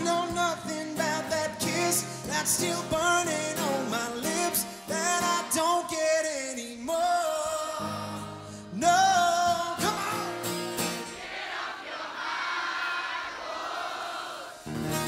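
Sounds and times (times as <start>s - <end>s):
live country band playing: 0.0s - 11.1s, 14.6s - 15.0s
crowd cheering: 10.9s - 15.0s.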